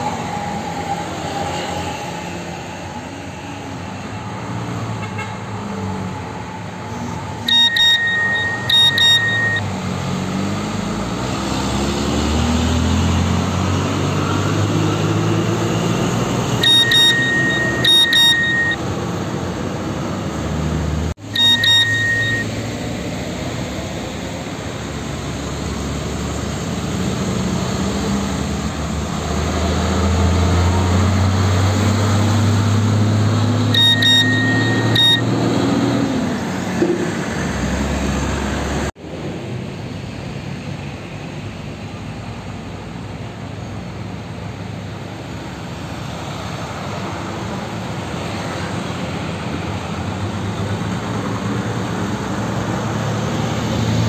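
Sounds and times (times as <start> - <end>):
road traffic with trucks: 0.0 - 54.0
short high beeps: 7.5 - 9.6, 16.6 - 18.8, 21.2 - 22.6, 33.8 - 35.3
diesel truck engine pulling away: 9.6 - 16.6, 22.5 - 33.7.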